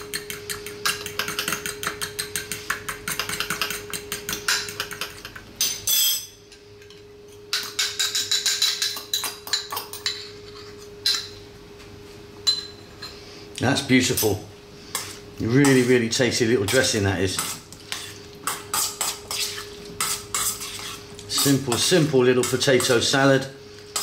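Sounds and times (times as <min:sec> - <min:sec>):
fork clinking on bowls: 0:00.0 - 0:11.4
faint steady hum: 0:00.0 - 0:24.0
fork whisking in ceramic bowl: 0:16.7 - 0:23.2.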